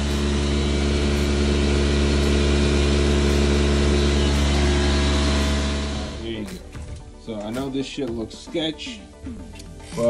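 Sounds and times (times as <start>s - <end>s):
machine motor humming and hissing: 0.0s - 6.6s.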